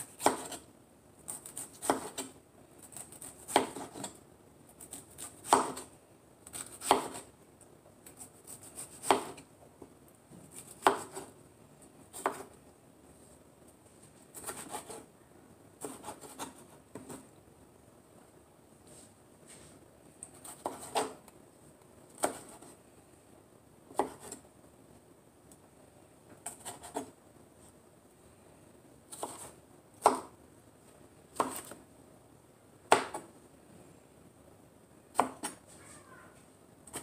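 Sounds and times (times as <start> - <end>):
knife slicing tomato: 0.0 - 0.7, 1.3 - 7.3, 8.0 - 9.5, 10.4 - 11.4, 12.1 - 12.6, 14.3 - 15.1, 15.8 - 17.3, 20.2 - 21.3, 22.1 - 22.8, 23.9 - 24.4, 26.4 - 27.2, 29.1 - 30.4, 31.3 - 31.8, 32.9 - 33.3, 35.1 - 35.6.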